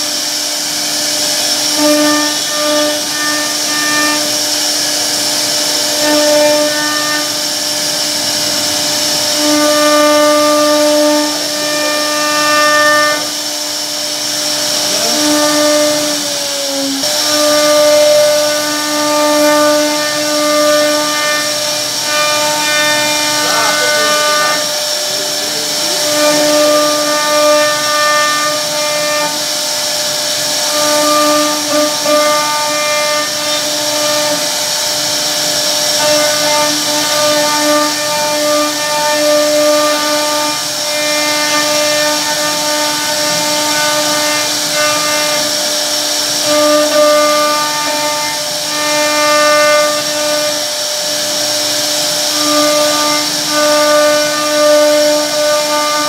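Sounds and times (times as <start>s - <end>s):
bit cutting wood hiss: 0.0s - 56.0s
router spindle whining: 0.0s - 56.0s.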